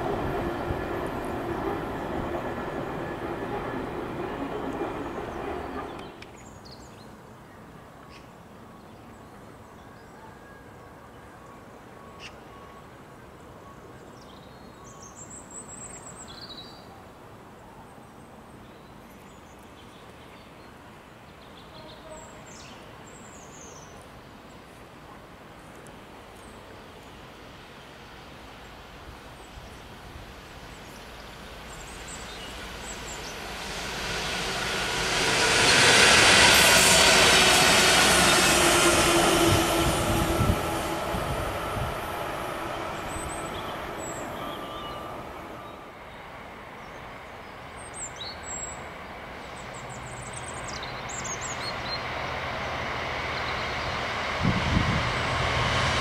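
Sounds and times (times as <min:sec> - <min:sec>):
diesel locomotive engine hum: 0:00.0 - 0:06.4, 0:29.5 - 0:56.0
train passing: 0:00.0 - 0:06.7, 0:24.7 - 0:56.0.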